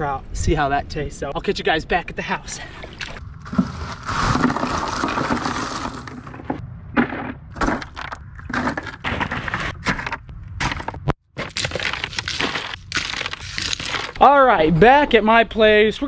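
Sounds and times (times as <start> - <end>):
ice cubes crunching and clinking: 3.5 - 6.5, 10.6 - 14.2.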